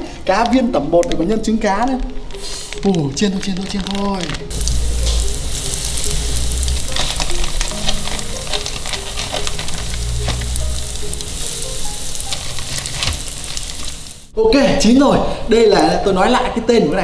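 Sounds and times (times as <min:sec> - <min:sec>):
food sizzling in hot oil: 0:04.5 - 0:14.3.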